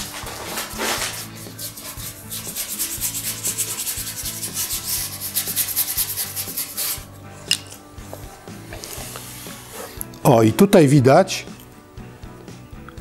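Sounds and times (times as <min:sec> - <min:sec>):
paintbrush scrubbing on metal: 0:00.0 - 0:07.1.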